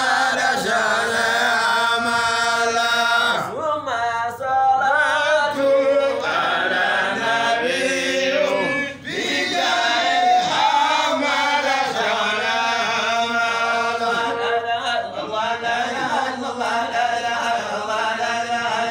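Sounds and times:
men chanting together: 0:00.0 - 0:18.9.

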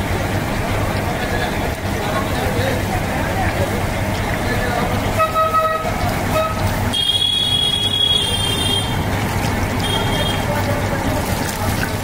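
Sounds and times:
oil sizzling deep-frying: 0:00.0 - 0:12.0
vehicle horn honk: 0:05.2 - 0:09.0, 0:09.8 - 0:10.5.

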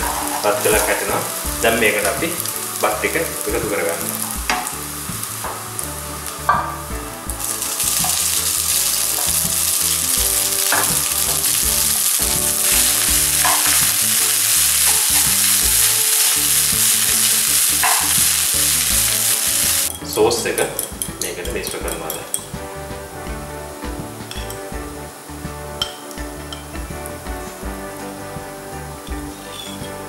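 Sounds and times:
wooden spatula scraping: 0:00.0 - 0:20.0, 0:29.2 - 0:30.0
food sizzling in a wok: 0:00.0 - 0:20.1, 0:20.8 - 0:30.0.

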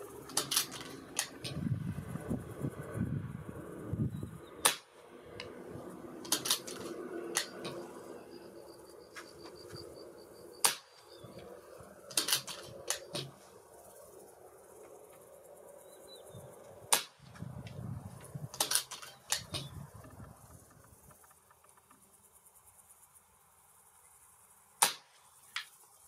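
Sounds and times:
mechanical clicks: 0:00.2 - 0:01.6, 0:06.2 - 0:07.8, 0:18.5 - 0:21.0
air rifle firing: 0:00.3 - 0:01.6, 0:04.6 - 0:05.0, 0:10.6 - 0:11.0, 0:12.1 - 0:13.3, 0:16.9 - 0:17.4, 0:18.5 - 0:19.7, 0:24.8 - 0:25.2
wind rumble on microphone: 0:01.4 - 0:04.6, 0:16.1 - 0:18.6, 0:19.3 - 0:21.3.

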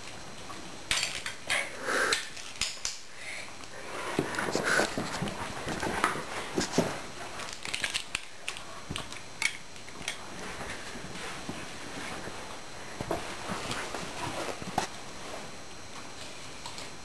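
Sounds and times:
puppy paws scuffling on wooden floor: 0:04.0 - 0:09.2, 0:09.8 - 0:16.9.

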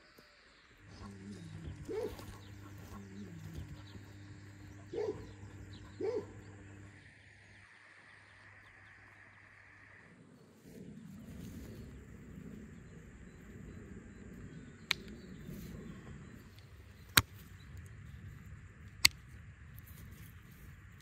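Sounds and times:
low steady hum: 0:00.0 - 0:21.0
dog barking: 0:01.8 - 0:03.0, 0:04.8 - 0:05.4, 0:06.0 - 0:06.4.

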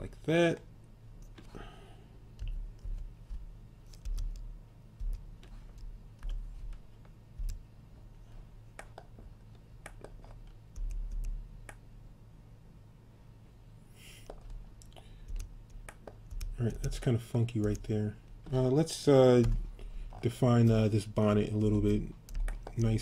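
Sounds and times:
steady low hum: 0:00.0 - 0:23.0
keyboard and mouse clicks: 0:02.4 - 0:06.8, 0:07.4 - 0:07.6, 0:08.8 - 0:11.8, 0:14.2 - 0:17.9, 0:21.7 - 0:23.0.

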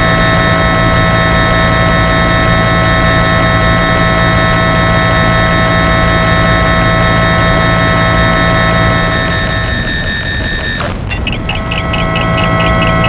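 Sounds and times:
high electronic tones: 0:00.0 - 0:13.0
low hum: 0:00.0 - 0:13.0.

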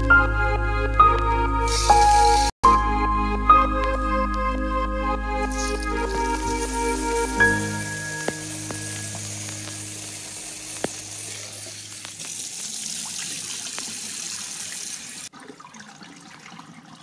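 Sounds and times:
faint water trickle: 0:08.2 - 0:17.0.

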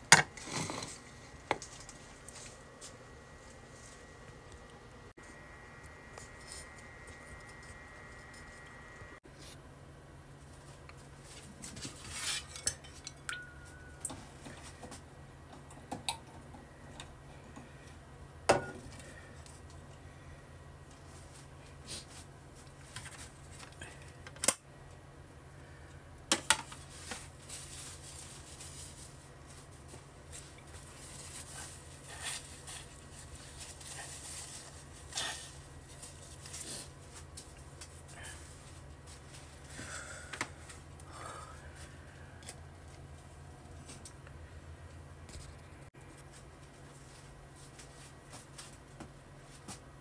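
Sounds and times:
steady low hum: 0:00.0 - 0:50.0
rustling and scraping: 0:00.3 - 0:04.4, 0:10.3 - 0:15.1, 0:26.6 - 0:39.8, 0:44.8 - 0:50.0.

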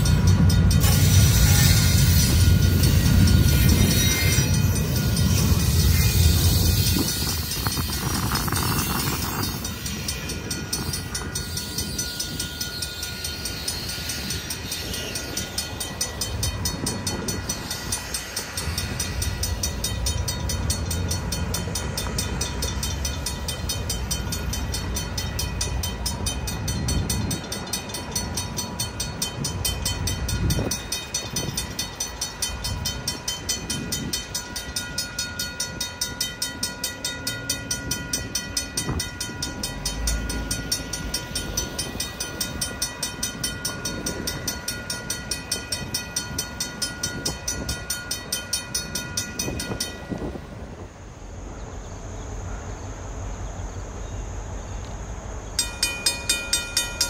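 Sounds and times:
railroad crossing bell ringing: 0:00.0 - 0:51.0, 0:55.4 - 0:57.0
low rumble of train and vehicles: 0:00.0 - 0:57.0.

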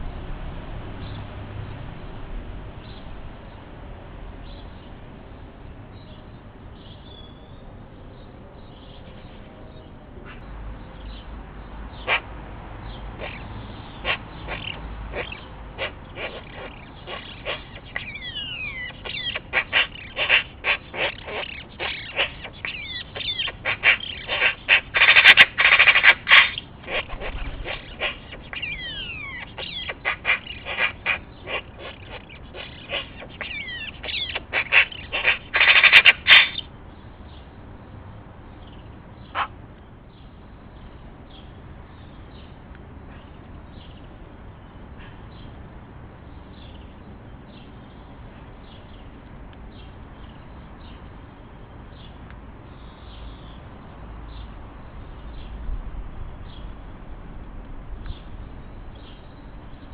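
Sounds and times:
magpie chattering: 0:12.0 - 0:12.3, 0:13.2 - 0:36.7.

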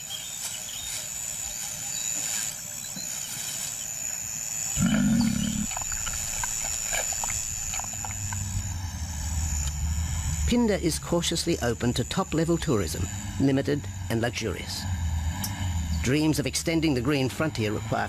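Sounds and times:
high-pitched whine: 0:00.0 - 0:18.0
lion calling: 0:04.8 - 0:06.0.

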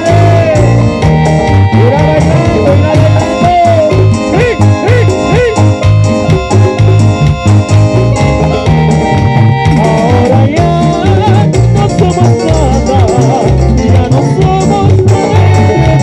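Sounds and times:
person singing: 0:00.0 - 0:01.0, 0:01.7 - 0:05.8, 0:09.6 - 0:16.0
latin dance band music: 0:00.0 - 0:16.0
pulsing bass: 0:00.0 - 0:16.0.

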